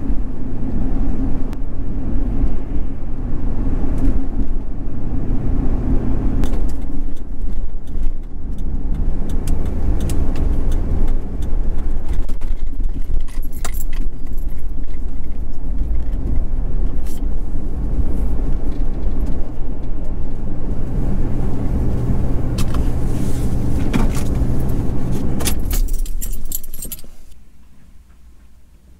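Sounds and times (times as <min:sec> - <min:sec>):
truck engine and road drone: 0:00.0 - 0:28.9
light rattles and clinks: 0:12.4 - 0:16.2, 0:25.4 - 0:27.4.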